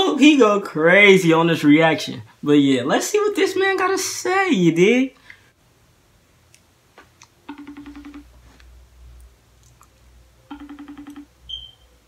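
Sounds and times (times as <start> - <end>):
phone ringing tone: 7.4 - 8.4, 10.5 - 11.7.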